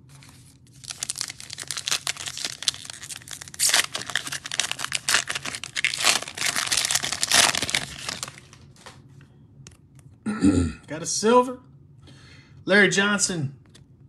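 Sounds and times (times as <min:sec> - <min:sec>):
foil wrapper crinkling: 0:00.1 - 0:09.0
foil wrapper ripping: 0:00.2 - 0:08.9.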